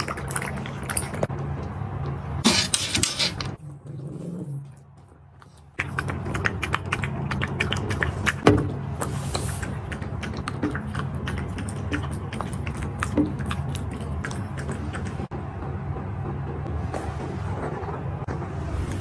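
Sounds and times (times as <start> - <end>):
dogs lapping water: 0.0 - 1.8, 5.4 - 15.3
low steady hum: 0.0 - 19.0.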